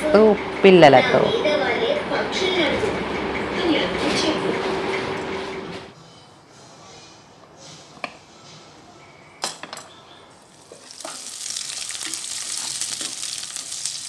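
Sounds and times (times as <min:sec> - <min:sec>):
onions sizzling in oil: 0:10.5 - 0:14.0.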